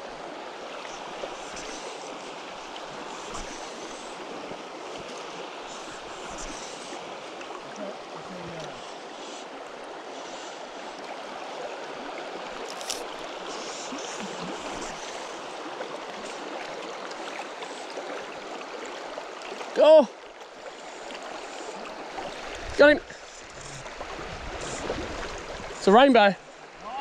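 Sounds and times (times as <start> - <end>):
stream rushing over stones: 0.0 - 27.0.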